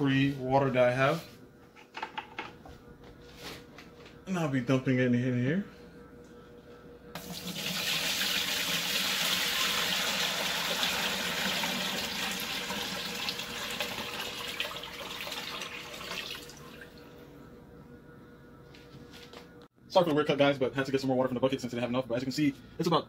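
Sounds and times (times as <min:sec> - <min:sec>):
water pouring into plastic tub: 0:07.2 - 0:16.9.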